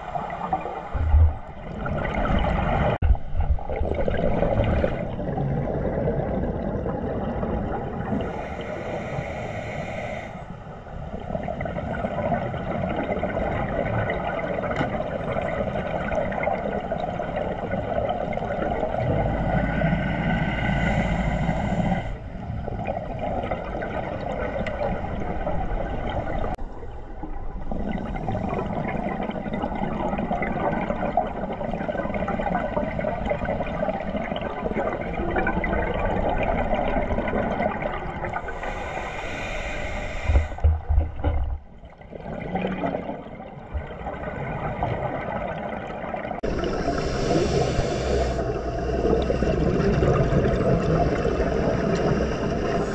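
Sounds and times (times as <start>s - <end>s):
exhaled bubbles: 0.0s - 9.1s, 11.0s - 52.9s
muffled water rush: 0.0s - 52.9s
regulator breathing: 19.9s - 22.3s, 38.4s - 40.7s, 46.6s - 49.1s.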